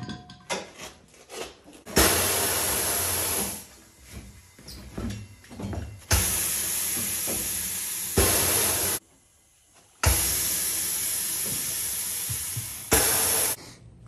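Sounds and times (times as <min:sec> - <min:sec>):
compressed air hissing: 0:02.0 - 0:03.9, 0:06.1 - 0:09.0, 0:10.0 - 0:13.6.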